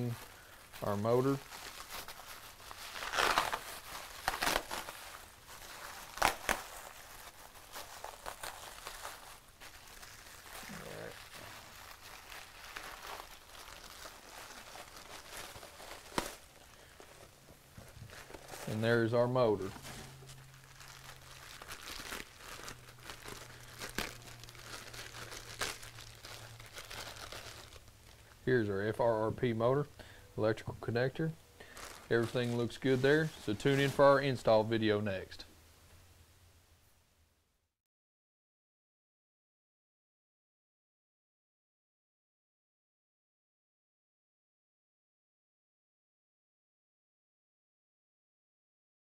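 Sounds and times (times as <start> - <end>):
plastic wrap crinkling: 0.0 - 28.4, 31.6 - 34.7.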